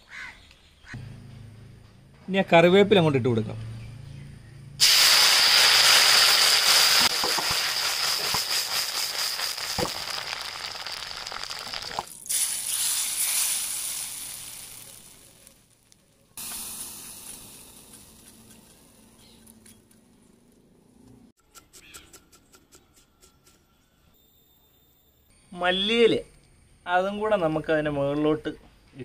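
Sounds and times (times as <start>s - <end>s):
leaves sizzling in hot oil: 4.8s - 19.6s
tempering sizzle bursts: 4.8s - 20.2s.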